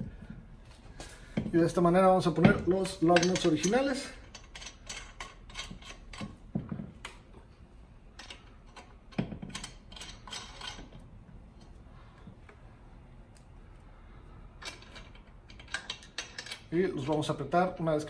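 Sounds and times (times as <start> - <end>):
lug nuts clicking on studs: 2.4 - 7.4, 8.2 - 11.0, 14.6 - 17.4.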